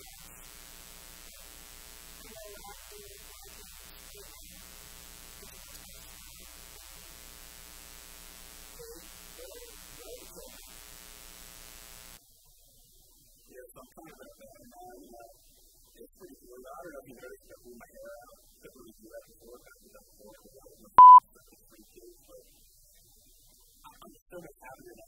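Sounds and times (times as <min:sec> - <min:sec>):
electrical mains hum with hiss: 0:00.0 - 0:23.9
faint indistinct murmurs: 0:12.2 - 0:25.0.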